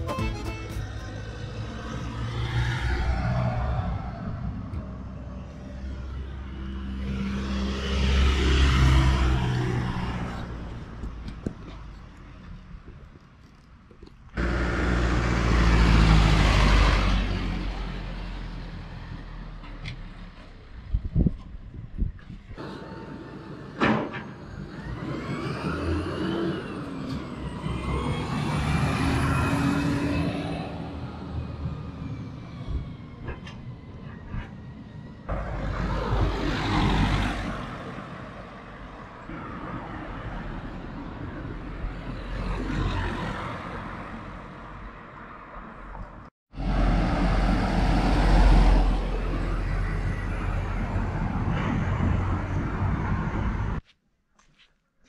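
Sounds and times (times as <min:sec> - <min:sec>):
heavy vehicle passing: 0:14.4 - 0:20.8, 0:46.6 - 0:53.8.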